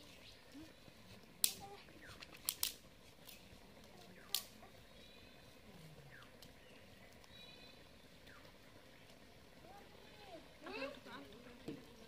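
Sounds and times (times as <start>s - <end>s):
dry twigs snapping: 1.4s - 1.6s, 2.2s - 3.4s, 4.2s - 4.6s
faint bird chirps: 3.3s - 9.2s.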